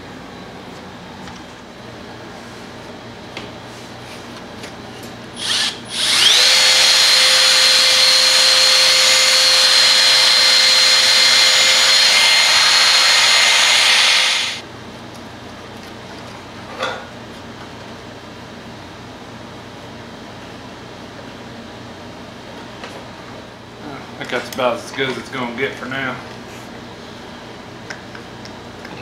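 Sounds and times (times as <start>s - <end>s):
cordless drill whine: 5.4s - 14.6s.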